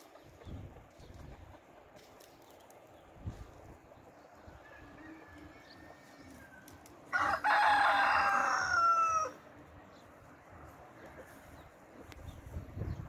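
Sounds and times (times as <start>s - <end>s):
rooster crowing: 4.6s - 9.4s.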